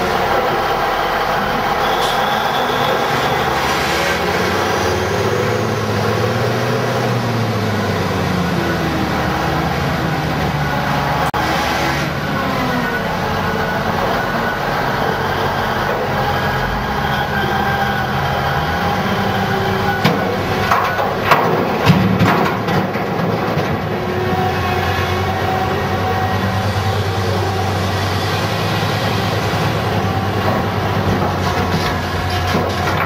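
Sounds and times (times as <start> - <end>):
diesel engines running: 0.0 - 33.0
rock dumped into steel truck bed: 20.1 - 24.1.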